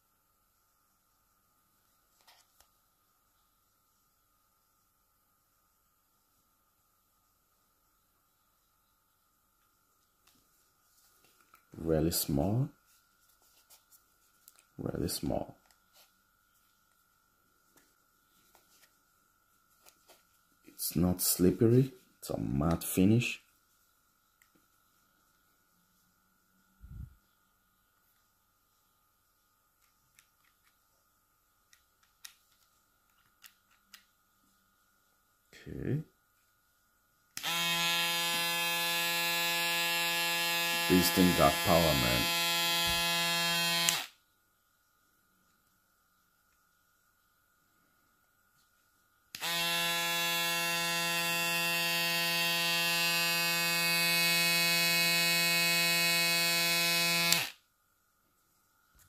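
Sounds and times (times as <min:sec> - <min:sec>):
electric shaver buzzing: 0:37.4 - 0:44.2, 0:49.3 - 0:57.6.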